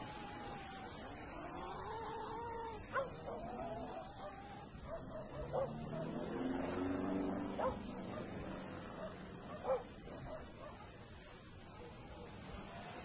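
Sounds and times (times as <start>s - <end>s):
dog barking: 2.9s - 12.6s.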